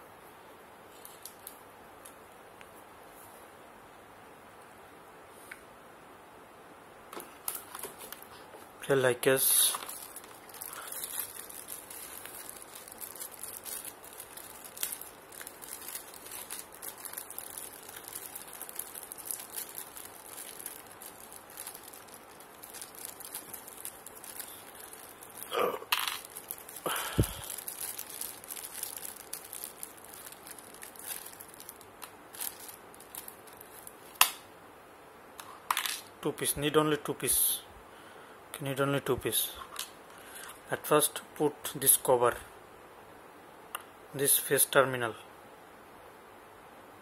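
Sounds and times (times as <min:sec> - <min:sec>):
plastic bag crinkling: 0:07.2 - 0:08.4, 0:09.2 - 0:34.4.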